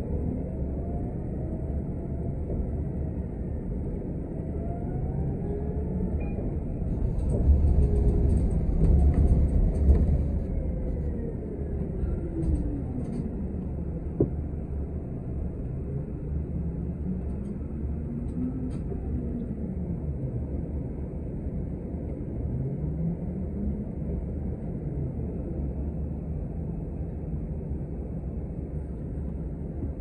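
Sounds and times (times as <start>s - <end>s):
bus engine rumble: 0.0s - 30.0s
bus whine: 0.0s - 30.0s
bus body rattling: 6.9s - 10.5s.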